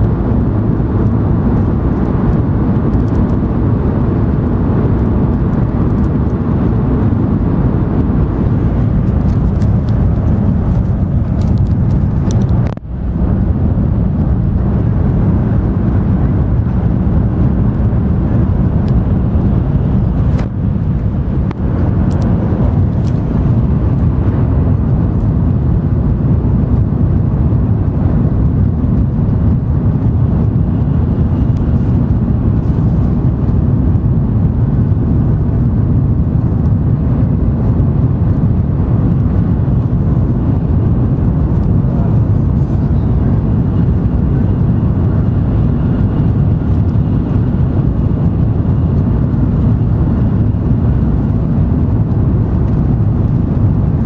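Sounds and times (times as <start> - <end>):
train cabin low rumble: 0.0 - 54.0.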